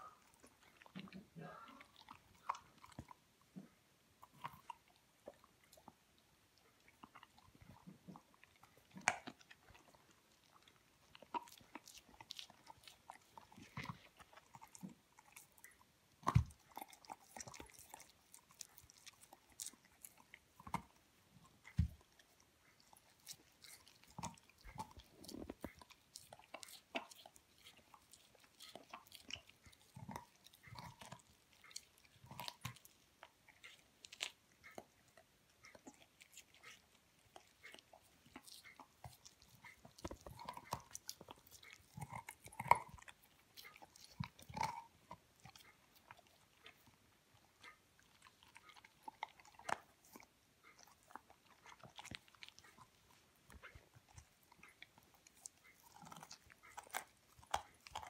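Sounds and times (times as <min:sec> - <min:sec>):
dog gnawing and crunching bone: 0:00.0 - 0:58.0.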